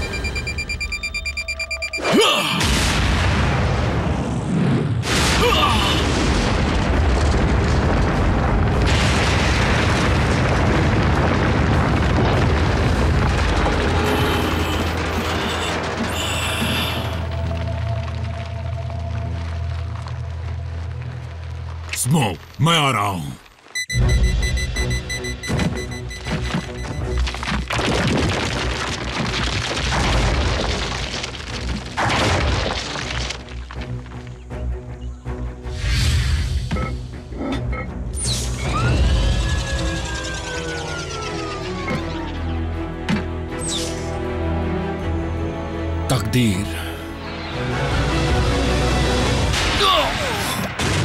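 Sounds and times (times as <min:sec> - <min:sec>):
cartoon explosion rumble: 0:02.5 - 0:17.2
background music: 0:41.1 - 0:51.0.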